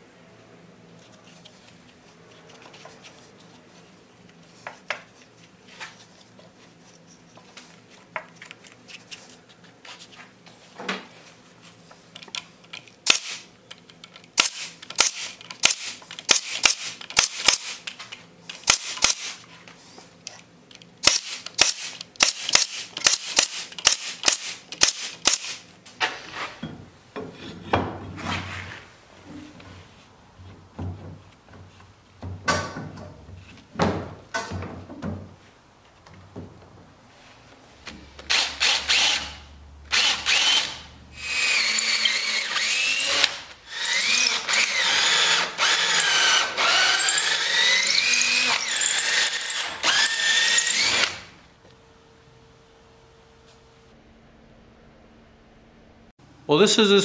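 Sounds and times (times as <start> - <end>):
pneumatic staple gun firing: 13.0 - 13.5, 14.3 - 17.9, 18.5 - 19.4, 21.0 - 25.6, 38.2 - 51.3.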